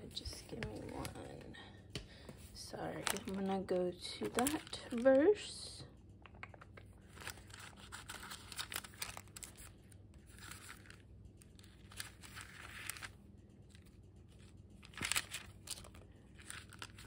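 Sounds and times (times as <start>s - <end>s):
thin pages rustling: 2.9s - 3.5s, 4.2s - 5.1s, 7.0s - 17.0s.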